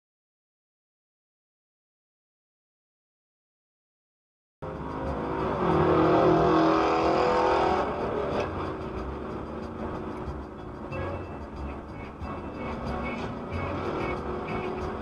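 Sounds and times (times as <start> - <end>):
car engine and road noise: 4.6 - 15.0
steady pitched tone: 4.6 - 15.0.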